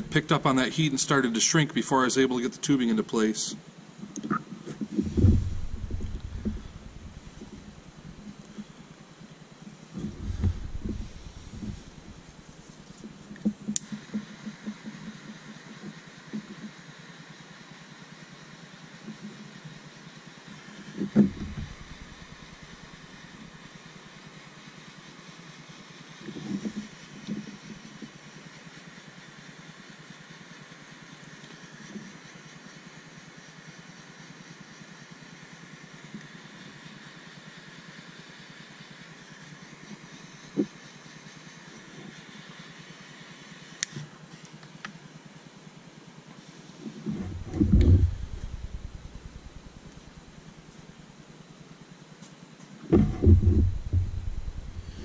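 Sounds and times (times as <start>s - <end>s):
background hiss: 0.0s - 55.0s
handling knocks and thumps: 4.8s - 8.7s, 10.0s - 12.5s, 21.0s - 22.2s, 47.1s - 50.3s, 52.9s - 55.0s.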